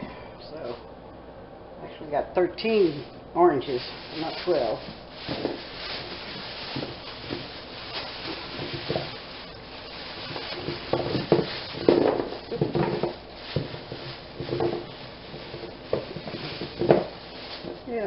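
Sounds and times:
plastic bags crinkling: 2.6 - 18.0
carrots knocking together: 3.9 - 17.9.

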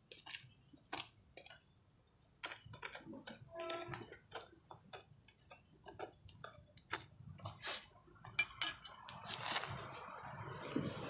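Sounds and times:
hand tool digging in soil: 2.4 - 11.0.

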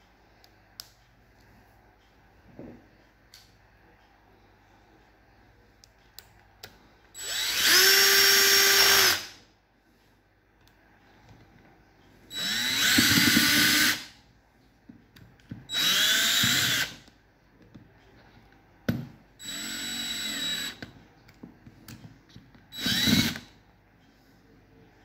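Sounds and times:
cordless drill motor whine: 7.2 - 9.3, 12.3 - 14.1, 15.7 - 17.0, 19.4 - 20.8, 22.7 - 23.5.

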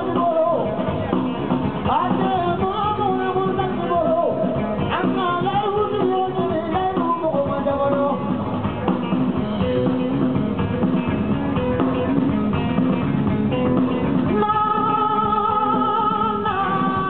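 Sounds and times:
person singing lead vocal: 0.0 - 9.0, 14.0 - 17.0
live rock band playing: 0.0 - 17.0.

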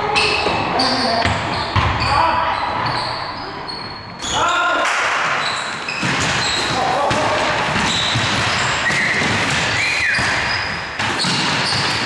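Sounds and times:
basketball bouncing: 1.2 - 2.1, 5.8 - 12.0
short high shoe squeaks: 5.3 - 6.8, 7.8 - 12.0.

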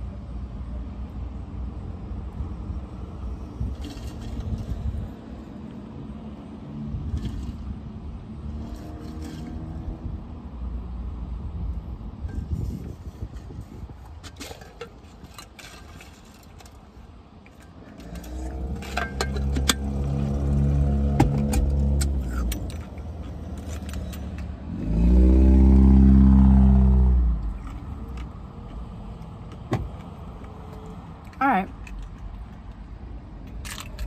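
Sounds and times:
car keys jangling: 14.2 - 24.5, 29.5 - 34.0.

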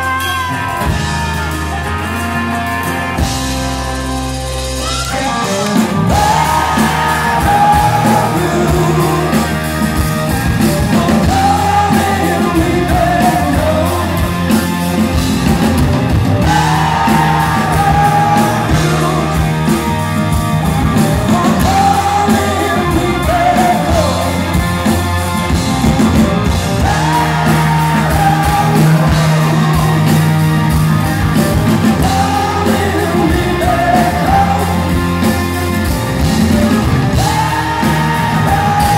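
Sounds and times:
drums: 0.0 - 38.9
electric guitar: 0.0 - 38.9
person singing: 4.8 - 15.2, 16.4 - 38.9.

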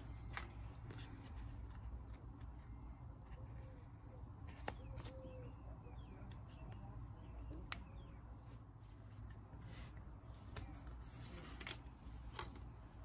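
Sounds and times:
faint bird chirps: 2.6 - 8.6.

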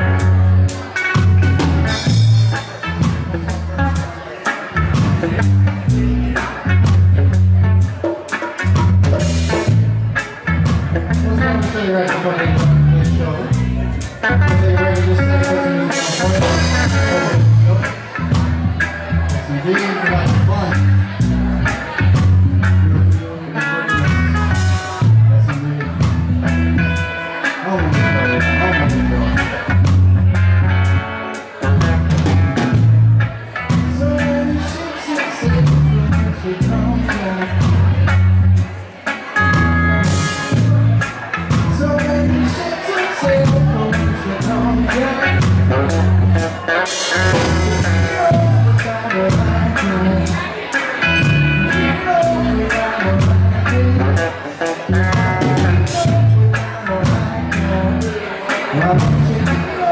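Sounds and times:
deep bass line: 0.0 - 59.9
electric guitar notes: 0.0 - 59.9
reggae band playing: 0.0 - 59.9.

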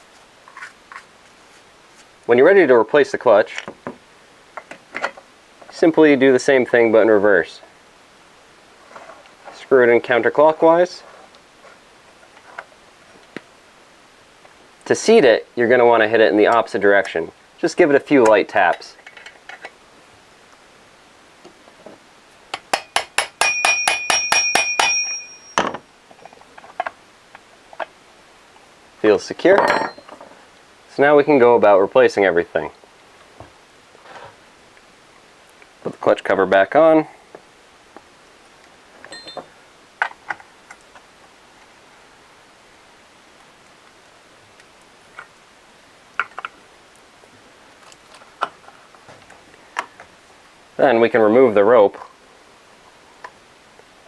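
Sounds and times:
tools clicking and knocking: 22.5 - 27.0
hammer tapping metal wrench: 22.6 - 25.8.

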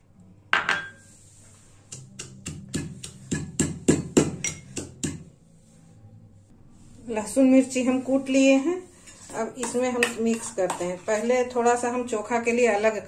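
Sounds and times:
pestle pounding in metal mortar: 1.9 - 5.3.

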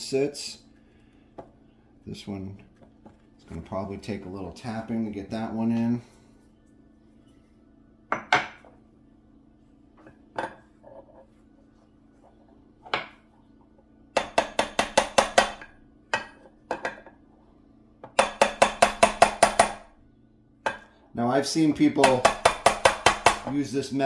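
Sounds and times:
hammer tapping metal: 14.2 - 16.9, 18.1 - 19.9, 21.8 - 23.6.

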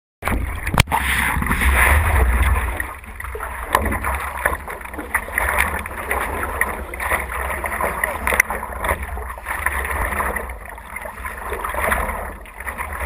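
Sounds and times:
low microphone rumble: 0.2 - 13.0
paddle strokes in water: 0.2 - 13.0
water lapping at board: 0.2 - 13.0.

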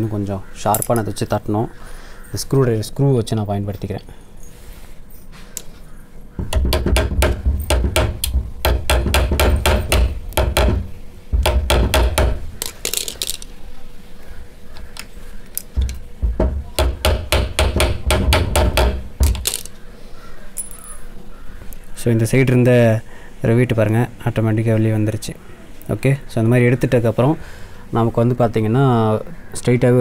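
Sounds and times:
hammer tapping on metal: 6.4 - 13.0, 15.6 - 19.7.

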